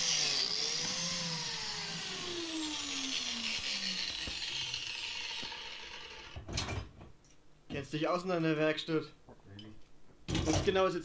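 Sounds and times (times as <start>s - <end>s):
electric motor whining down: 0.0s - 6.6s.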